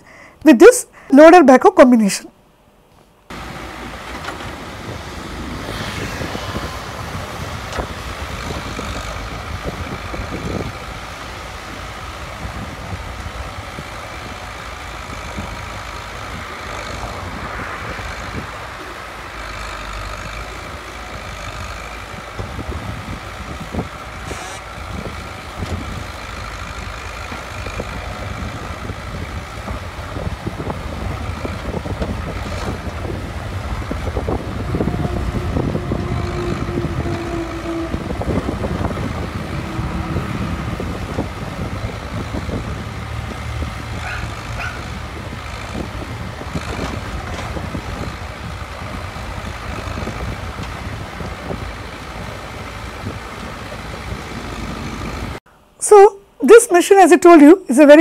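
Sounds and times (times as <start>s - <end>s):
diesel engine running under load: 0.0s - 0.4s, 2.6s - 55.7s.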